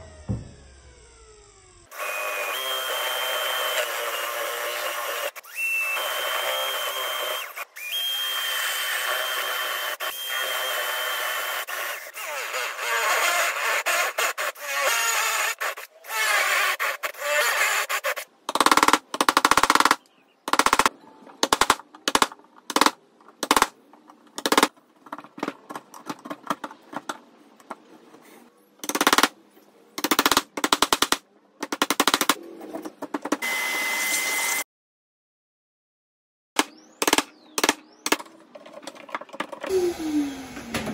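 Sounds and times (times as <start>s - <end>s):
power drill boring into wood: 1.9s - 18.8s.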